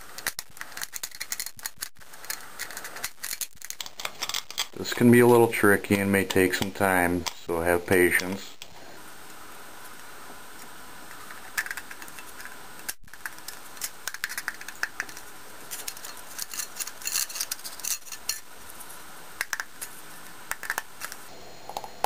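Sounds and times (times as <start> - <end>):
aluminium can crinkling and clicking: 0.1 - 4.8, 11.1 - 18.4, 19.4 - 19.9, 20.5 - 21.2
steady hiss: 4.2 - 22.0.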